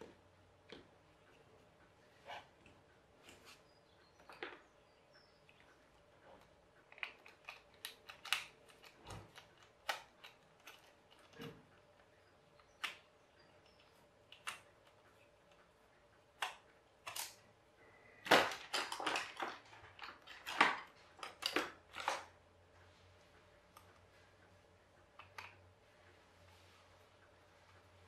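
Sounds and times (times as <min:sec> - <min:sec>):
screwdriver clicking on screws: 0:06.9 - 0:11.3
plastic parts rattling: 0:18.2 - 0:22.3.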